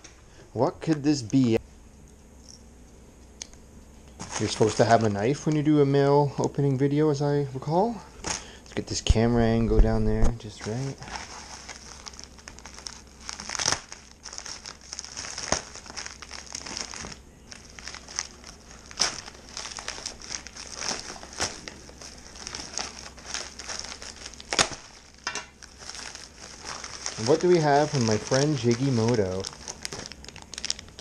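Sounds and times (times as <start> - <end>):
plastic mailer crinkling: 4.2 - 5.8, 8.2 - 31.0.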